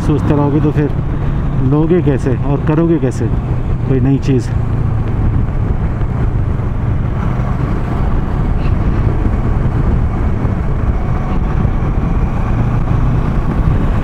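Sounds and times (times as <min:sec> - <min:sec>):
motorcycle engine and road rumble: 0:00.0 - 0:14.0
wind noise: 0:00.0 - 0:14.0.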